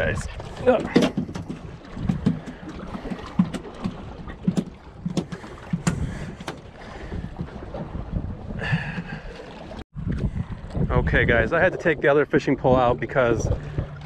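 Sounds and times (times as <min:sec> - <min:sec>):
wind and water wash: 0:00.0 - 0:14.0
knocks on fiberglass boat: 0:03.3 - 0:07.9.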